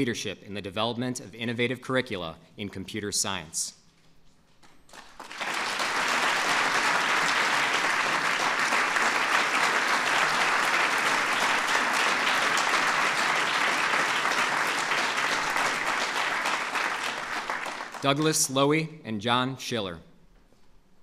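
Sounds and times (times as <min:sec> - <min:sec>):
audience applauding: 0:04.9 - 0:18.2.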